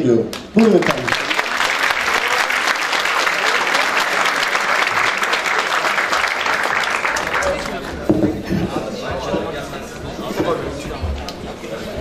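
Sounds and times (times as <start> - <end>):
crowd applauding: 0.3 - 8.1.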